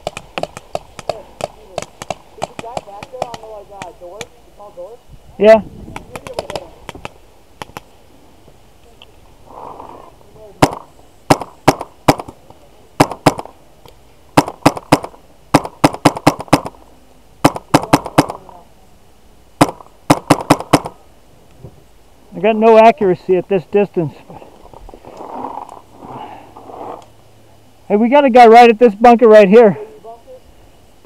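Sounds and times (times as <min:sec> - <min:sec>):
paintball marker firing pops: 0:00.0 - 0:04.3, 0:05.9 - 0:07.9, 0:10.6 - 0:12.4, 0:13.0 - 0:16.8, 0:19.6 - 0:21.0.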